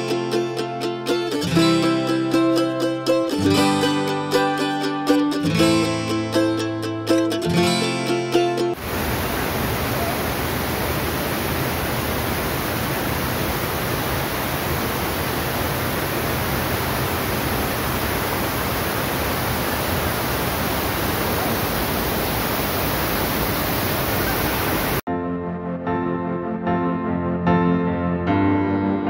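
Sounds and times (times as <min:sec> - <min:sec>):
waterfall rushing over rocks: 0:08.8 - 0:25.0.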